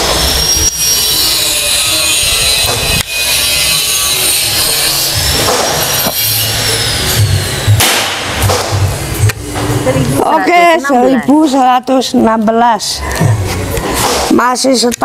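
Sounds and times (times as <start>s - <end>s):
power cutting tool whining: 0.0s - 7.8s.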